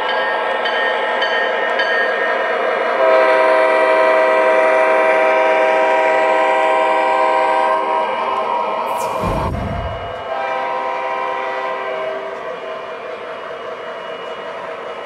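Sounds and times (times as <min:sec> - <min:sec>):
model locomotive running sounds: 0:11.4 - 0:15.0.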